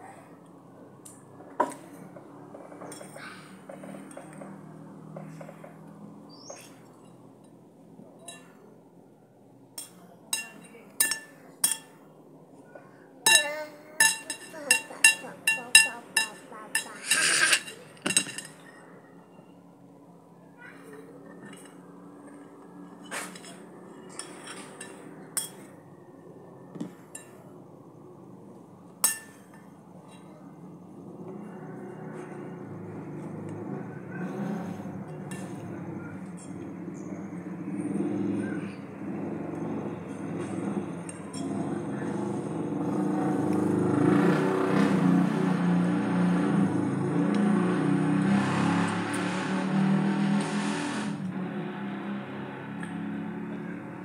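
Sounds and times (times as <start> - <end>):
metal spoon clinking on plate: 8.2 - 8.6, 9.8 - 12.0, 13.3 - 18.8, 22.8 - 25.7, 29.0 - 30.3
spoon tapping and scraping: 9.8 - 12.0, 13.3 - 18.8.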